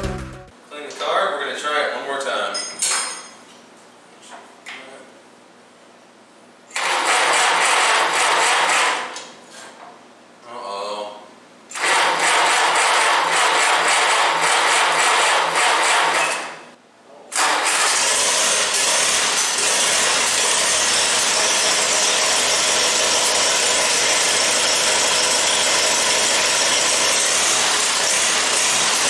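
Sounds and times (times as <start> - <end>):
starter cranking engine: 11.7 - 16.2, 17.4 - 20.4.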